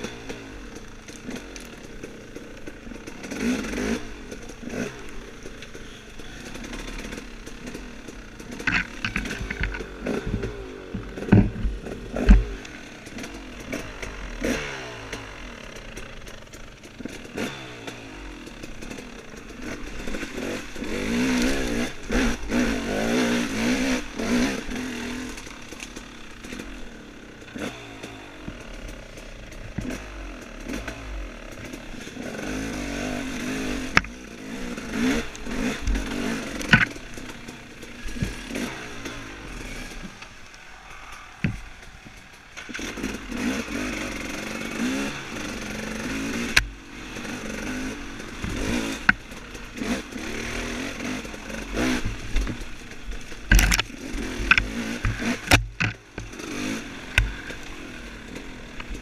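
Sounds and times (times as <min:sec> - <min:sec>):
dirt bike engine revving: 0:00.0 - 0:59.0
sharp knocks and clatter: 0:08.4 - 0:21.0, 0:35.0 - 0:39.2, 0:46.3 - 0:57.7.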